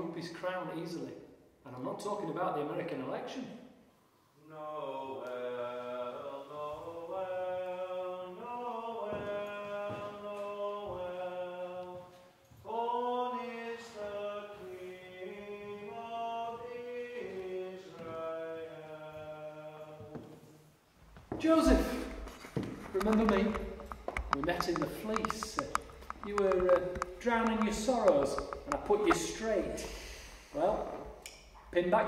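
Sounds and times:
chant-like singing: 4.4 - 20.5, 21.6 - 30.0.

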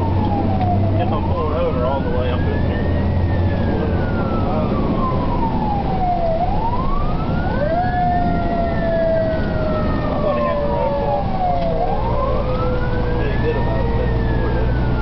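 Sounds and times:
fire truck siren wailing: 0.0 - 15.0
steady siren tone: 0.0 - 15.0.

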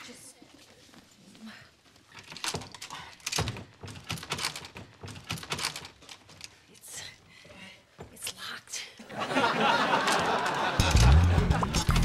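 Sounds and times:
door knob and latch rattling: 2.2 - 6.6.

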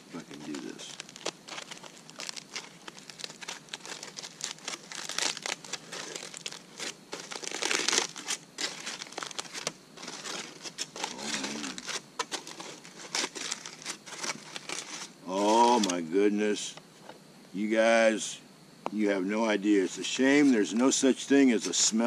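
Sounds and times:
aluminium foil crinkling: 0.1 - 16.0.

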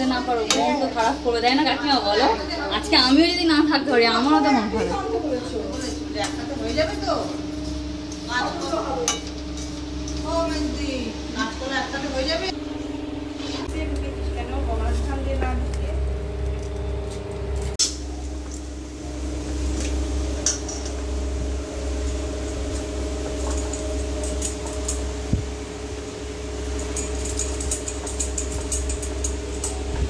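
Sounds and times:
steel utensils clinking: 8.1 - 11.0, 22.0 - 25.2, 26.7 - 30.0.

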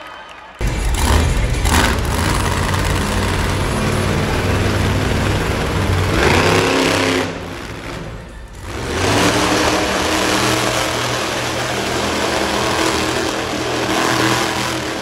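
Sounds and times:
monster truck engine revving: 0.6 - 15.0.

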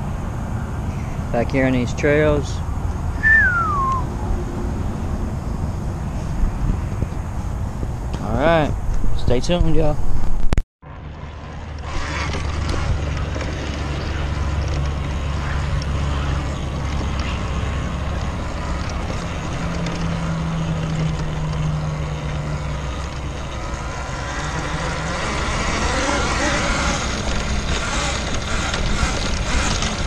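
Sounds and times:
electric dirt bike riding: 0.0 - 9.0, 10.9 - 30.0
wind rushing: 3.0 - 10.6
tyres on sandy dirt: 11.3 - 30.0.

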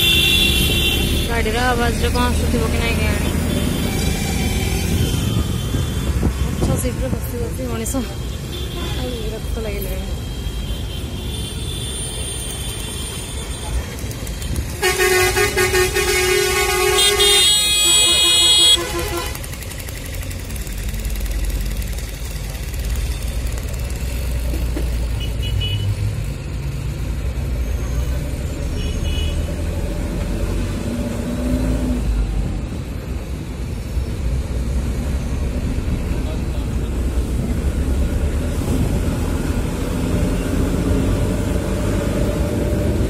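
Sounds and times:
vehicle horn: 0.0 - 1.4, 3.2 - 6.3, 14.7 - 19.5, 25.2 - 26.0, 28.7 - 29.5
vehicle rumbling on road: 0.0 - 43.0.

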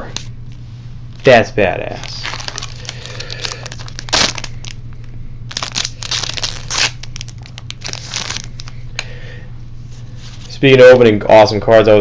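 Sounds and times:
foil wrapper crinkling and tearing: 1.9 - 4.8, 5.5 - 8.8.

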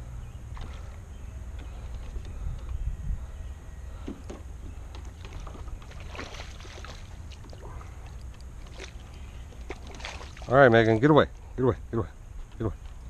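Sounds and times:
low steady rumble: 0.0 - 13.0
fish splashing at water surface: 5.1 - 10.6.

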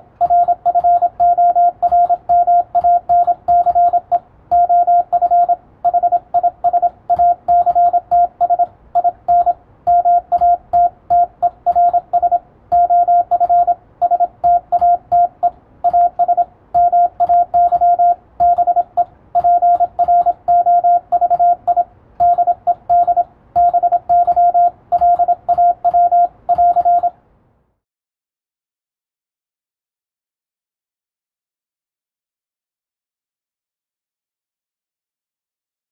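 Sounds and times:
morse code tone: 0.0 - 27.2.

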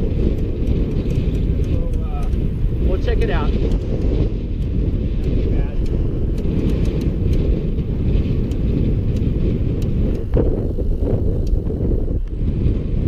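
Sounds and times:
wind buffeting microphone: 0.0 - 13.0
faint light ticks: 11.4 - 11.6.

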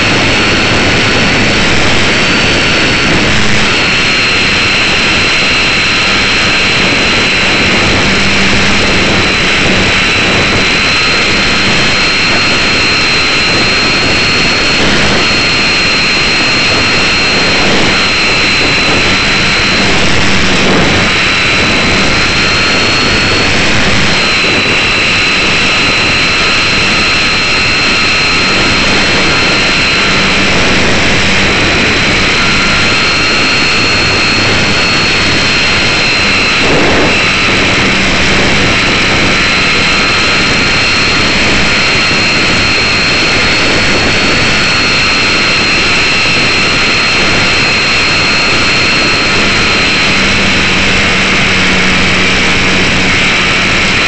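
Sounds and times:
electric motor and propeller whine: 0.0 - 54.0
rushing airflow: 0.0 - 54.0.

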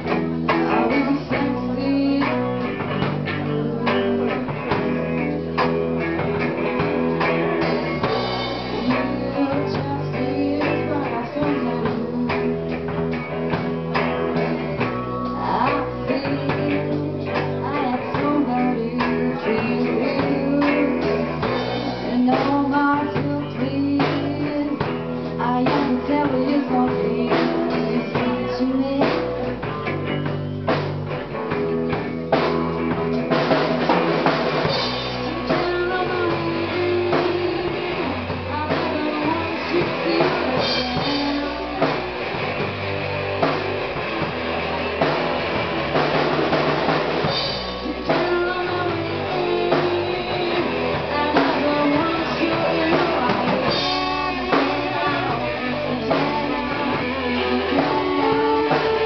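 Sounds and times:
woman singing: 0.0 - 5.0, 7.9 - 13.7, 14.8 - 30.8, 34.2 - 42.2, 47.2 - 59.0
bass guitar: 0.0 - 59.0
drum kit: 0.0 - 59.0
electric guitars: 0.0 - 59.0.

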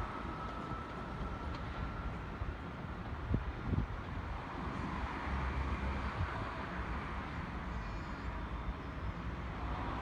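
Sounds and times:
train rumbling along track: 0.0 - 10.0
wind buffeting microphone: 2.4 - 4.4.

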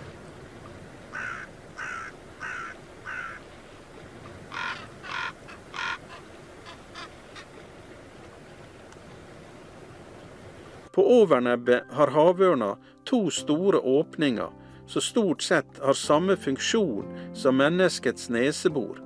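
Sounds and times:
raven calling: 1.1 - 3.5, 4.2 - 7.6.

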